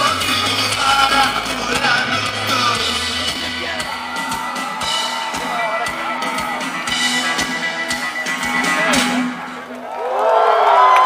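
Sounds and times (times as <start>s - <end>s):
bass guitar notes: 0.0s - 9.7s
drum kit: 0.0s - 9.8s
electric guitar: 0.0s - 9.8s.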